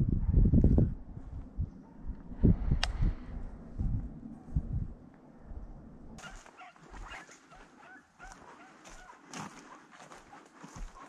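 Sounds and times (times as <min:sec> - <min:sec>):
wind rumble on microphone: 0:00.0 - 0:07.2
hounds barking and yelping: 0:06.2 - 0:11.0.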